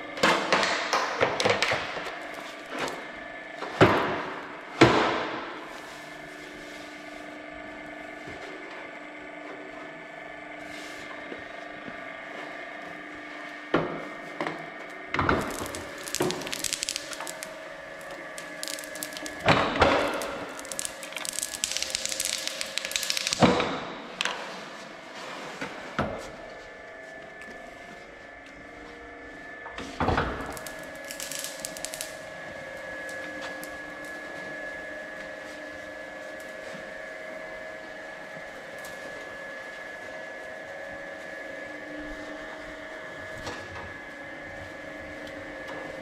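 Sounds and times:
steady machine hum: 0.0s - 46.0s
plastic film crinkling: 15.4s - 23.5s, 30.5s - 32.2s.

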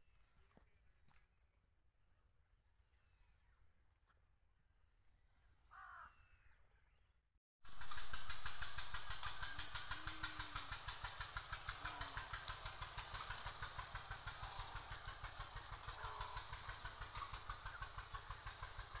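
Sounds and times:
engine idling: 7.7s - 19.0s.

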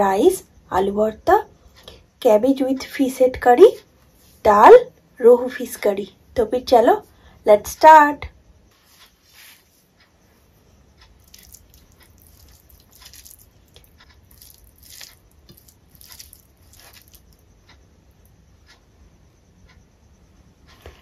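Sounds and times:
sticky squishing of food mixed by hand: 11.1s - 17.5s.

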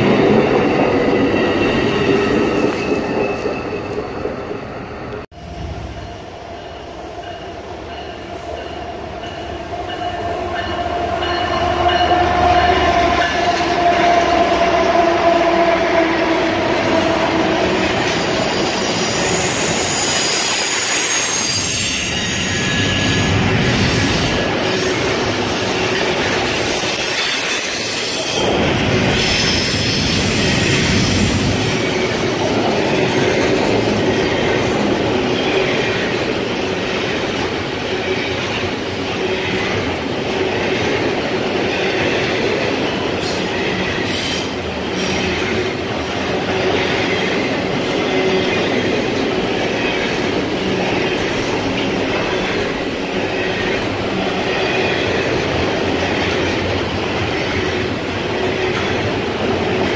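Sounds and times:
freight train rumble and clatter: 0.0s - 59.9s
wheel squeal: 18.8s - 28.4s.

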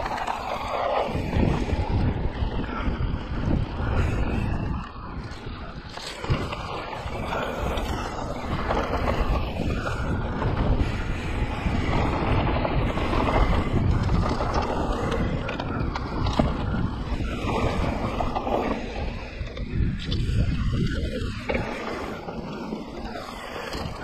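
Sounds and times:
bike tyres rumbling on dirt: 0.0s - 24.0s
wind buffeting microphone: 0.0s - 24.0s.

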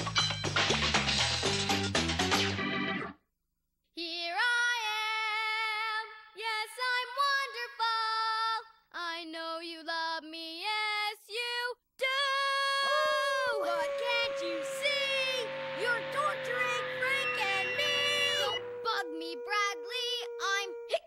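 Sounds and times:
girl singing long notes: 12.0s - 21.0s.

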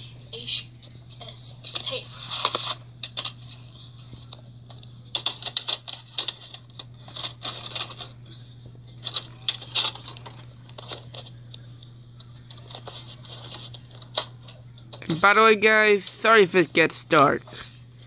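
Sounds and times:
low electrical hum: 0.0s - 18.0s
objects clicking and rustling: 1.7s - 8.2s, 8.9s - 11.6s.

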